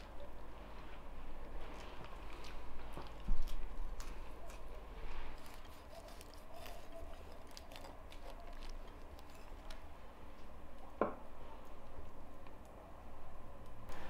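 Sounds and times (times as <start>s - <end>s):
knife cutting pineapple shell: 3.5s - 9.8s.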